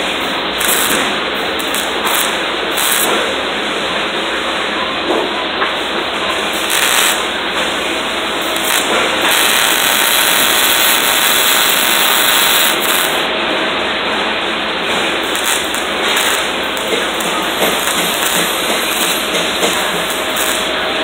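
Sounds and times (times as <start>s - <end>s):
arc welding hiss: 0.0s - 3.4s, 6.4s - 13.3s, 15.1s - 21.0s.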